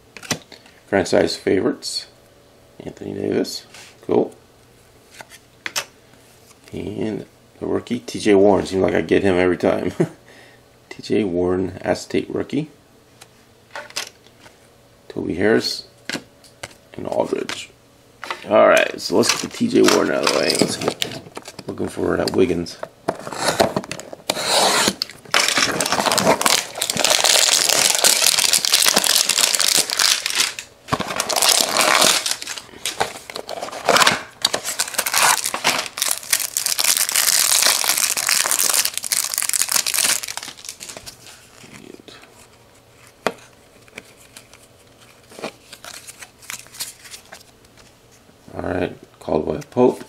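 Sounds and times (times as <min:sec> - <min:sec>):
cards being shuffled: 0:23.1 - 0:47.9
wrapper tearing and crinkling: 0:24.8 - 0:41.5.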